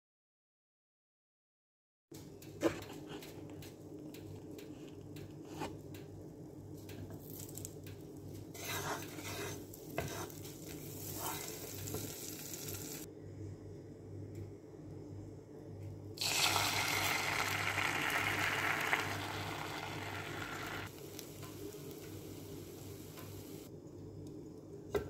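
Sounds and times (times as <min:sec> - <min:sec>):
wooden spatula scraping a pan: 0:08.5 - 0:12.2
butter sizzling in a pan: 0:08.6 - 0:13.1, 0:16.2 - 0:23.7
steady low hum: 0:13.0 - 0:16.2.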